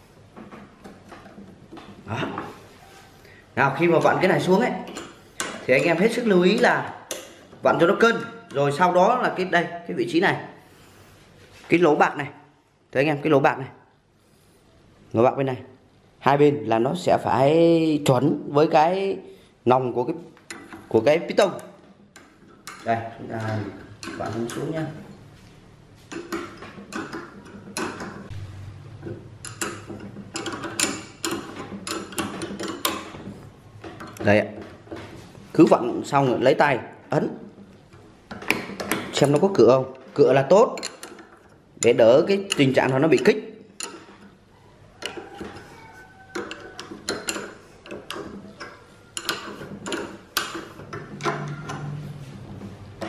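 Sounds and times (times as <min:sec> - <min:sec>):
spanner clicking on metal nuts: 0:29.0 - 0:35.0, 0:37.6 - 0:39.7, 0:40.4 - 0:44.4, 0:46.3 - 0:52.0
metallic clicks and taps: 0:46.3 - 0:51.8.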